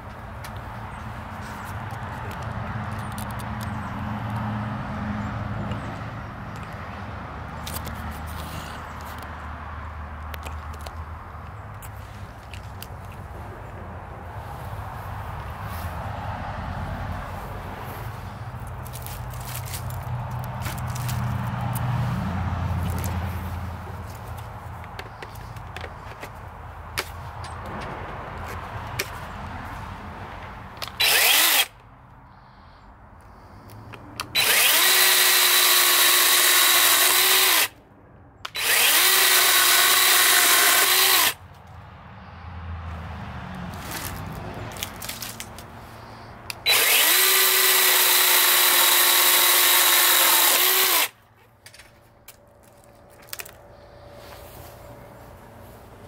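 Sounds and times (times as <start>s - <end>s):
chainsaw motor whining: 30.8s - 31.8s, 34.2s - 37.8s, 38.5s - 41.4s, 46.5s - 51.2s
sharp handling clicks: 30.8s - 31.9s.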